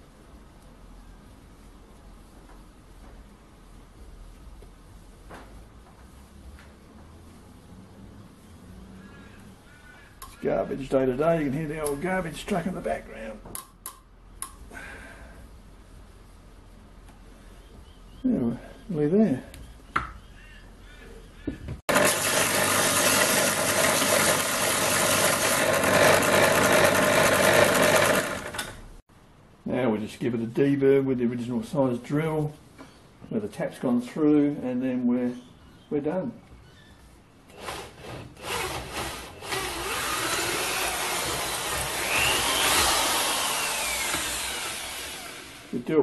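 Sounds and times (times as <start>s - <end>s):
belt sander grinding steel: 21.9s - 28.8s, 37.8s - 45.9s
electric drill whining: 21.9s - 28.8s, 37.6s - 45.8s
electric motor hum: 21.9s - 28.9s, 37.6s - 45.8s.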